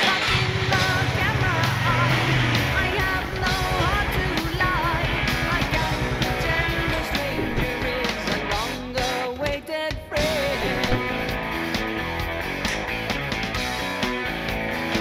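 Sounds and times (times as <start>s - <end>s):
person singing: 0.0s - 11.3s
rock music with electric guitar: 0.0s - 15.0s.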